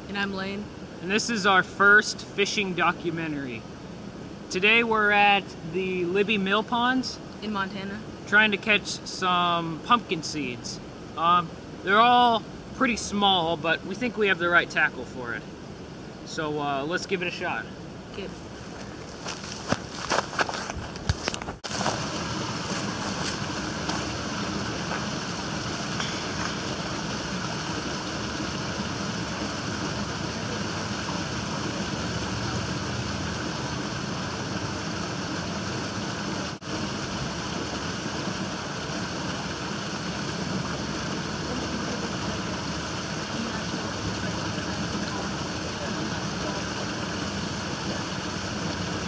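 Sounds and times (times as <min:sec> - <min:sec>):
steady rushing noise: 0:10.0 - 0:49.0.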